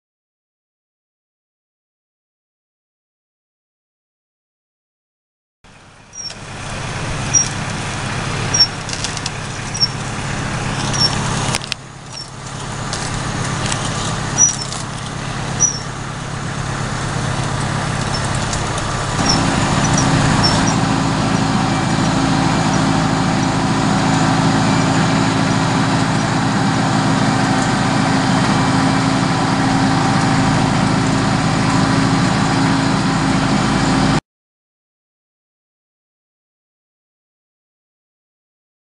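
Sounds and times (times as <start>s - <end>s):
tractor engine running: 5.7s - 34.2s
short high chirp: 7.3s - 7.6s, 14.4s - 14.8s, 15.6s - 15.9s, 19.2s - 20.8s.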